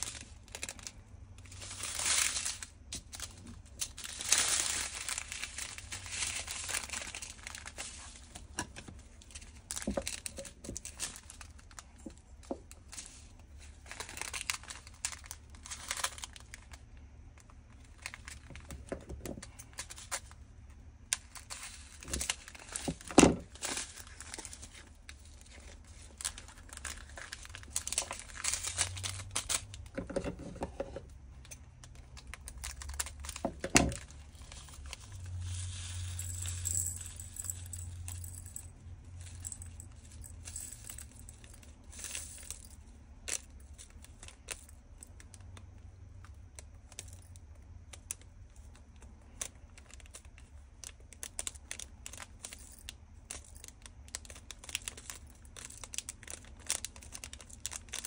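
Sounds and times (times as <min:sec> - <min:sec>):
plastic bags crinkling: 0:00.0 - 0:20.4, 0:21.1 - 0:58.0.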